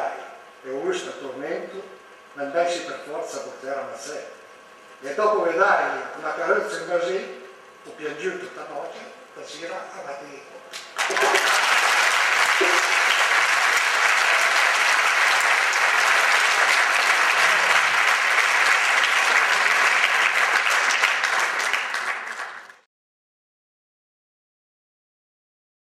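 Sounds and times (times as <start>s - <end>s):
audience applauding: 10.7s - 22.9s.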